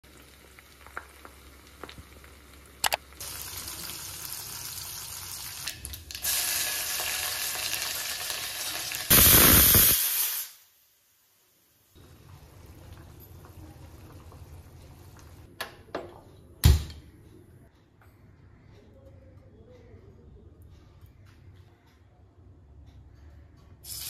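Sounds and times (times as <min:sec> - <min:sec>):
spices sizzling in hot oil: 0:00.1 - 0:15.4.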